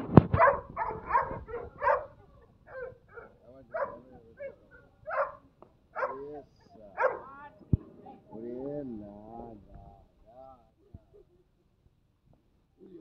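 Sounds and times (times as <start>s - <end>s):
dog barking: 0.3s - 7.4s.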